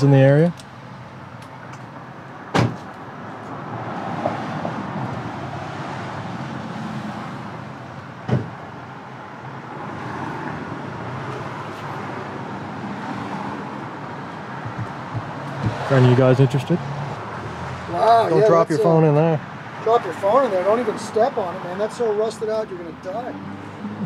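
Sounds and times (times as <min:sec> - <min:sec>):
car passing: 0:00.0 - 0:24.0
sharp knocks: 0:08.2 - 0:08.6, 0:14.6 - 0:15.9.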